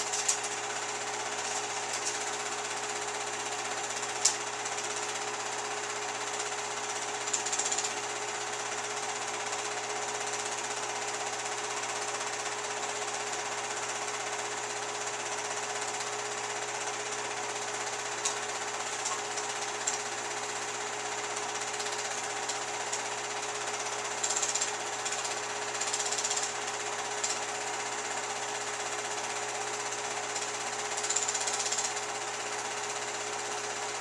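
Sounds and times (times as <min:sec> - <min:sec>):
film projector clatter: 0:00.0 - 0:34.0
constant hum: 0:01.4 - 0:02.8.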